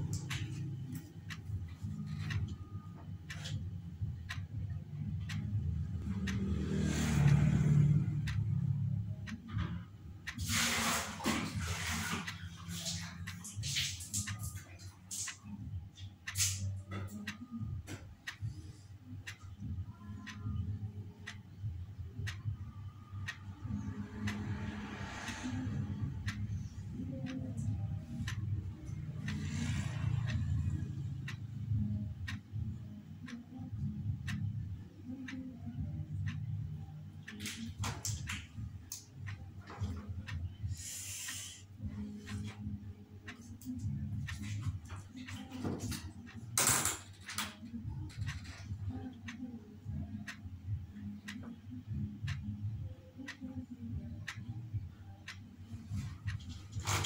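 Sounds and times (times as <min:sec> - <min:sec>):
steady low rumble: 0:00.0 - 0:06.4, 0:17.2 - 0:37.2, 0:38.2 - 0:40.9, 0:47.7 - 0:56.9
clock ticking: 0:00.0 - 0:57.0.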